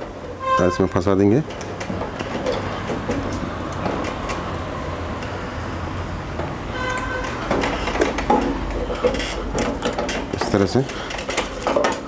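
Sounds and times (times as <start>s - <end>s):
wire scraping on metal valve: 0.0s - 2.9s, 6.7s - 11.7s.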